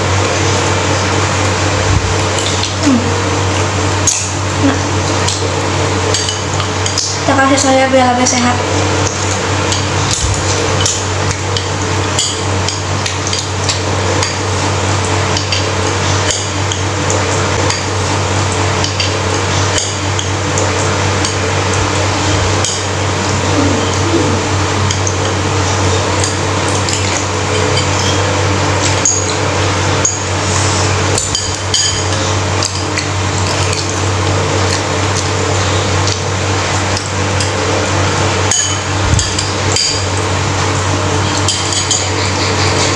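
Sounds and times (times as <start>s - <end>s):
low hum and hiss: 0.0s - 42.9s
cutlery clinking on ceramic bowl: 31.2s - 32.8s, 38.5s - 40.1s, 41.3s - 42.9s.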